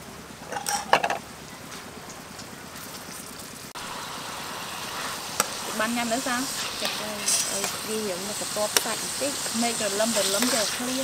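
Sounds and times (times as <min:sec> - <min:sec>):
beef sizzling in a pan: 0:02.8 - 0:11.0.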